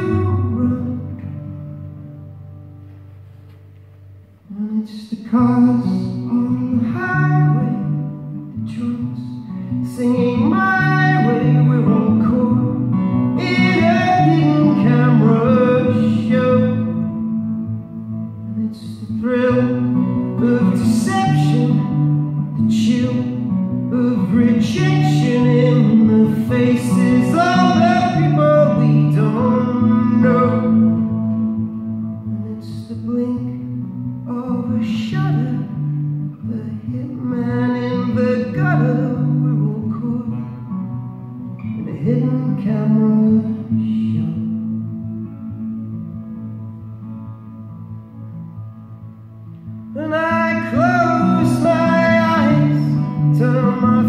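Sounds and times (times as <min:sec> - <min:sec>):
man singing: 0:00.0 - 0:01.6, 0:04.5 - 0:17.3, 0:18.4 - 0:31.4, 0:32.2 - 0:40.8, 0:41.6 - 0:44.8, 0:49.9 - 0:54.0
acoustic guitar: 0:00.0 - 0:54.0.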